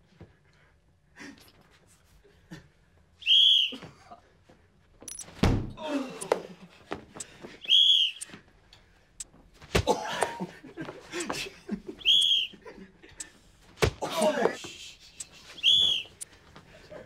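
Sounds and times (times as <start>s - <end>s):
referee's whistle blasts: 3.2s - 3.8s, 7.6s - 8.3s, 12.0s - 12.5s, 15.3s - 16.2s.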